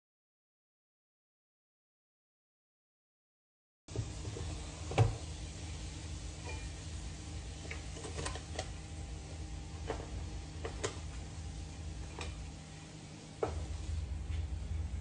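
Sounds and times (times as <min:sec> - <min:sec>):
steady low hum: 0:03.9 - 0:15.0.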